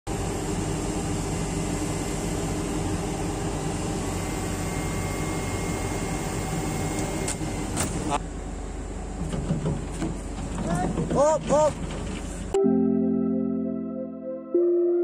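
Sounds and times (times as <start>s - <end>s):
excavator diesel engine running: 0.1s - 12.6s
faint high whine: 4.0s - 7.7s.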